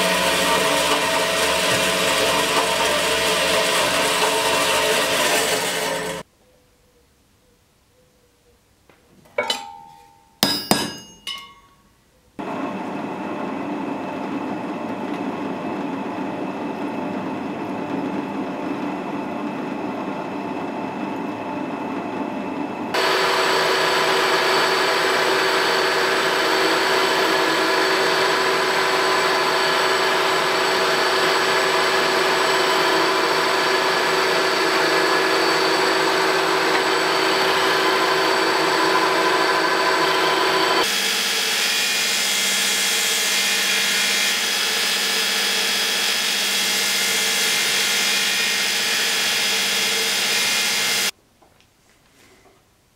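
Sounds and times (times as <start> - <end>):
drill press drilling steel: 0.0 - 6.2, 23.0 - 51.1
milling machine whining: 0.0 - 6.2, 12.4 - 51.1.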